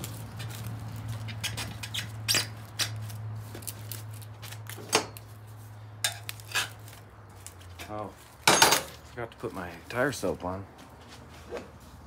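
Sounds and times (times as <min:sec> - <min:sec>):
tire irons clinking on wheel rim: 0:00.0 - 0:03.8, 0:07.7 - 0:09.5.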